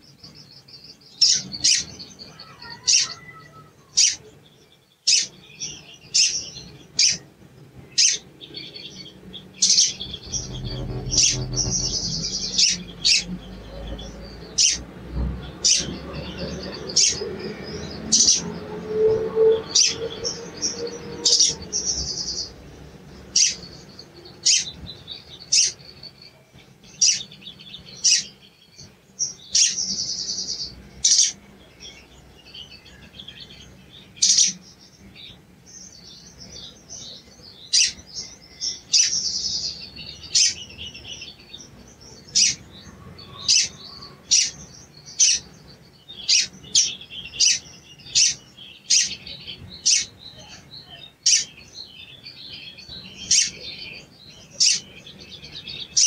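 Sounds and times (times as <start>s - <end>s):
bird chirping: 0.0s - 56.0s
bird fluttering trill: 9.6s - 13.3s.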